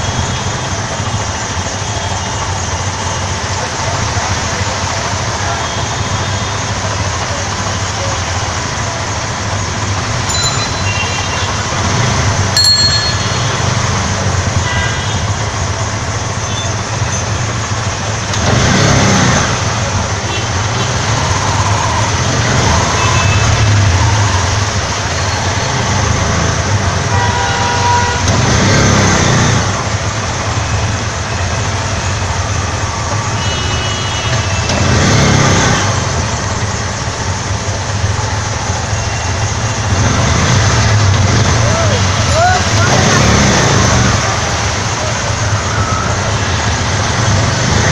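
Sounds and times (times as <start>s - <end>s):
street traffic noise: 0.0s - 47.9s.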